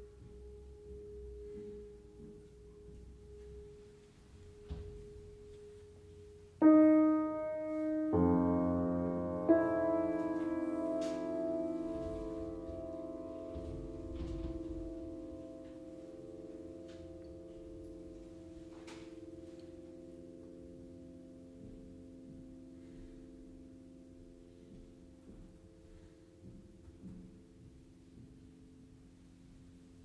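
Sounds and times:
piano strings ringing: 0.0s - 26.1s.

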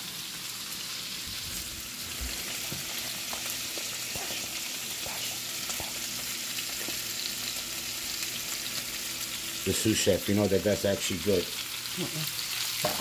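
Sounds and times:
chicken sizzling in skillet: 0.0s - 13.0s.

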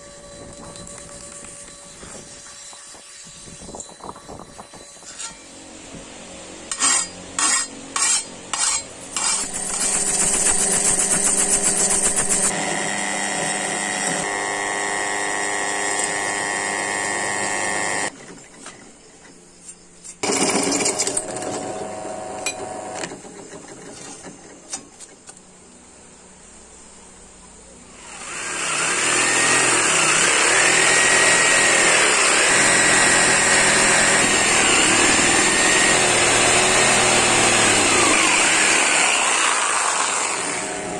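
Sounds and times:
file scraping steel blade: 4.8s - 5.6s, 6.7s - 12.5s
power tool running: 5.6s - 18.1s, 20.2s - 23.1s, 28.0s - 40.9s
drill press boring metal: 6.7s - 18.1s, 28.1s - 40.9s
jigsaw cutting wood: 9.1s - 18.1s, 28.0s - 40.9s.

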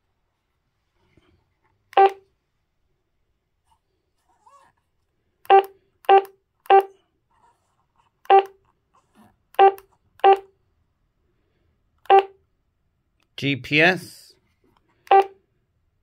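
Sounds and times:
radio key beeps: 15.1s - 15.3s.

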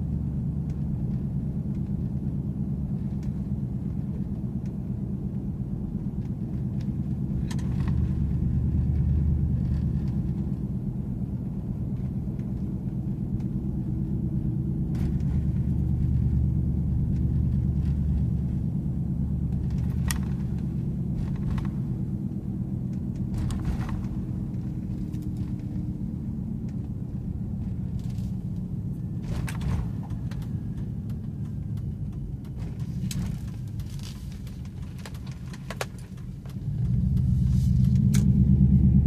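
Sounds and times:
truck engine droning: 0.0s - 39.0s
light clicks and rattles: 19.4s - 38.3s.

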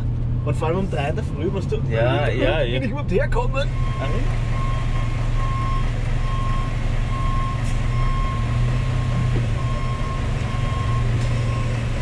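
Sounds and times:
diesel truck engine drone: 0.0s - 12.0s
reversing alarm beeping: 3.7s - 11.9s.

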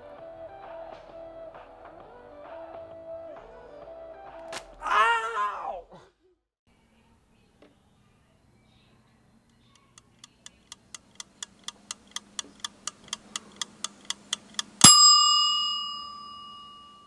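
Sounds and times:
timer ticking: 9.8s - 16.5s
bell ding: 14.8s - 17.0s.

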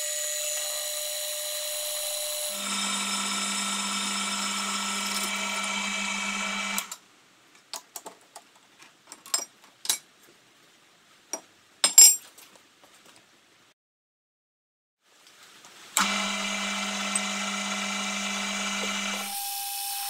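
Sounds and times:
milling machine motor humming: 0.0s - 6.9s, 16.0s - 20.0s.

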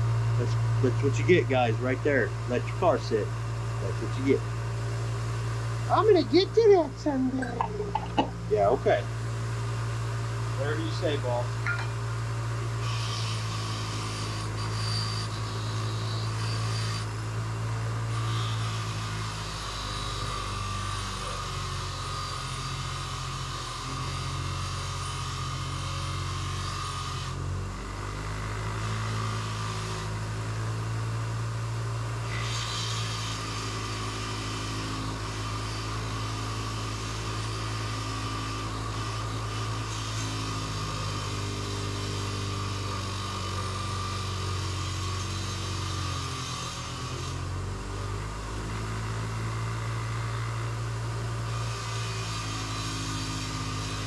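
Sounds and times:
bench grinder motor hum: 0.0s - 54.0s
wire wheel rasping on metal: 10.6s - 30.9s, 31.5s - 47.5s, 51.1s - 54.0s.

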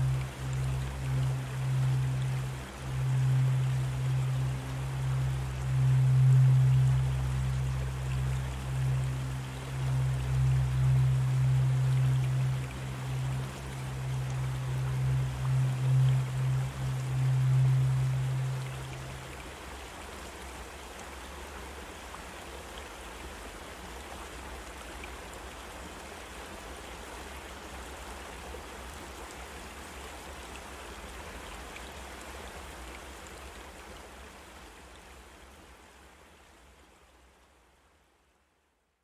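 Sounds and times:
low hum: 0.0s - 20.2s
steady background hiss: 0.0s - 39.0s.

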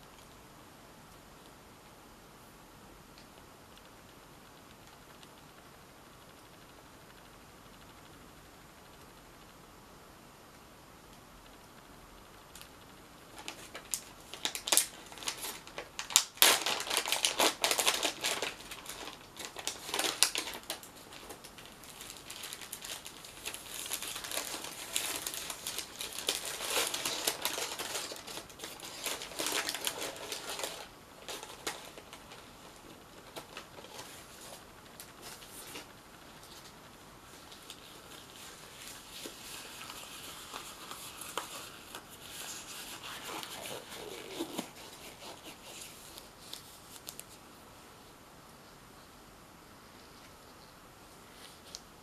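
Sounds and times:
paper wrapper crinkling: 13.3s - 47.4s.

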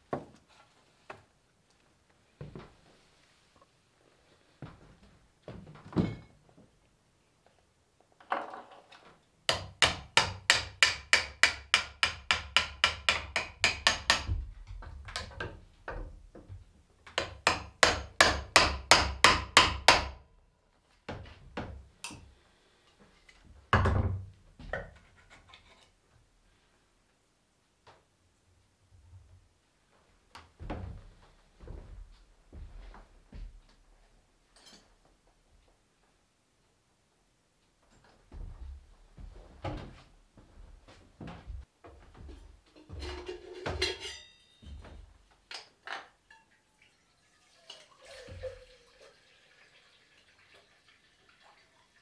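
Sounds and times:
hammer striking wood: 9.5s - 14.5s, 17.2s - 20.2s.

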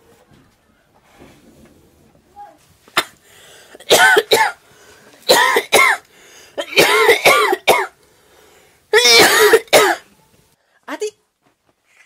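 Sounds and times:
woman coughing: 3.8s - 4.6s, 5.3s - 6.0s, 6.6s - 7.9s, 9.0s - 10.1s.

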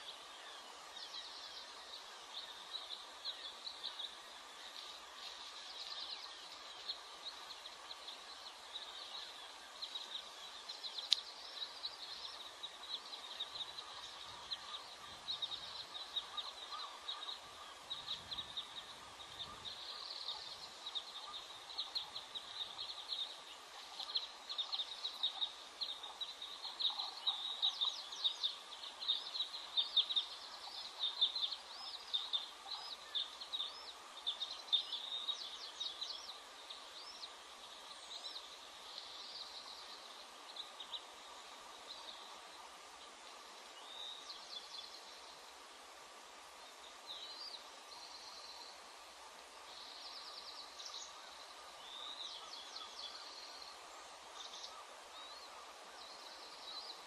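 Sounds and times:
birds chirping: 0.0s - 57.0s
steady hiss: 0.0s - 57.0s.

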